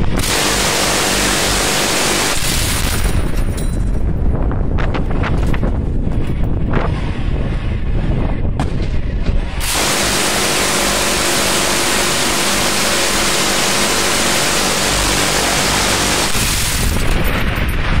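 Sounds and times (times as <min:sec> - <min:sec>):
miniguns firing continuous burst: 0:00.0 - 0:03.9, 0:09.5 - 0:18.0
wind rumble: 0:00.0 - 0:18.0.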